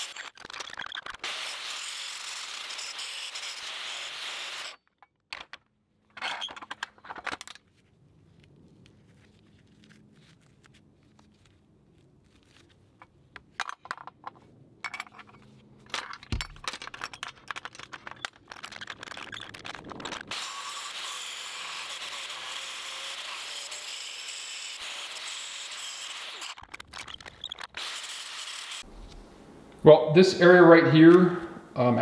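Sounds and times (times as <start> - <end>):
metal clinking and rattling: 5.0 - 7.8, 13.4 - 20.3, 26.6 - 27.8.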